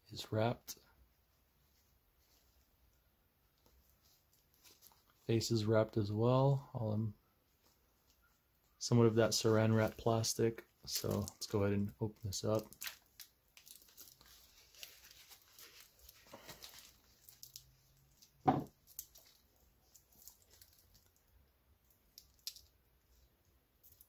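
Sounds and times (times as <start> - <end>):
plastic wrap crinkling: 3.6 - 5.3, 10.8 - 22.8
thump: 18.4 - 18.7.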